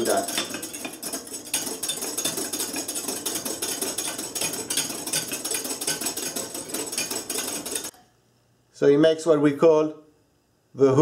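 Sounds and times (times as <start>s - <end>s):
whisk beating in metal bowl: 0.0s - 7.9s.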